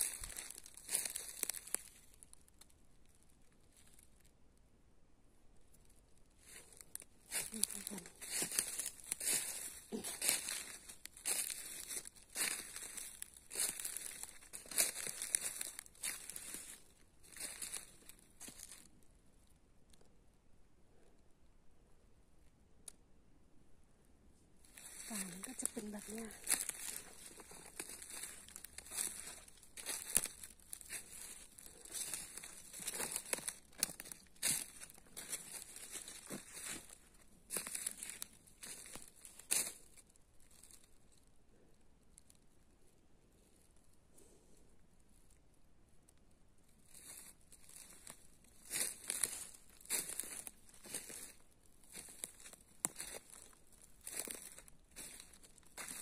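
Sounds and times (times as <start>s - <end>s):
footsteps crunching through dry leaves: 0.0s - 2.2s, 6.4s - 18.9s, 24.6s - 40.9s, 46.9s - 56.0s.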